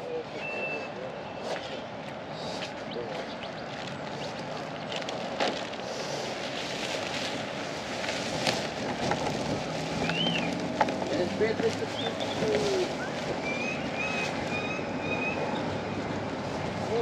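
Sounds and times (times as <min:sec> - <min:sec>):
road traffic noise: 0:00.0 - 0:17.0
wind on microphone: 0:06.3 - 0:11.2.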